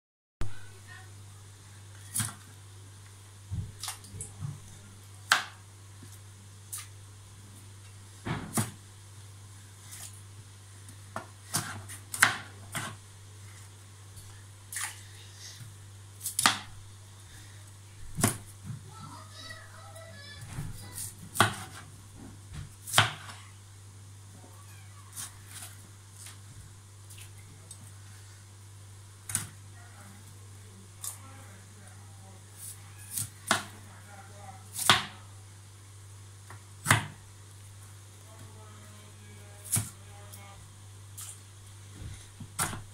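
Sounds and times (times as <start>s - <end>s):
steady low hum: 0.4s - 42.9s
knife chopping on cutting board: 8.3s - 8.8s, 21.3s - 21.9s, 22.8s - 23.3s.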